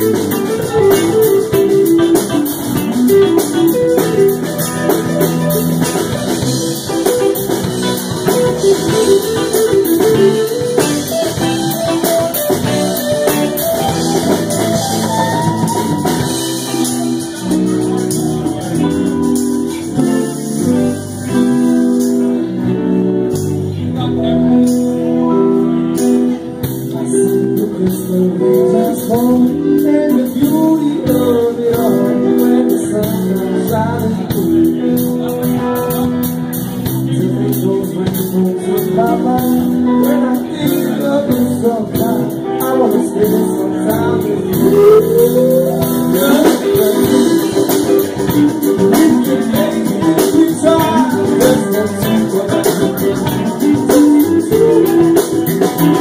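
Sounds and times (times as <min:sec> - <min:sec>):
electric guitar: 0:00.0 - 0:56.0
live band playing soul song: 0:00.0 - 0:56.0
man singing into microphone: 0:26.8 - 0:56.0.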